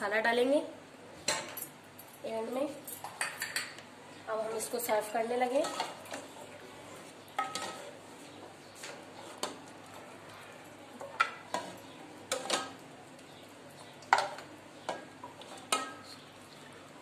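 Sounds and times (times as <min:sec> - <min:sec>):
ladle clinking against metal pot: 0:07.4 - 0:07.8.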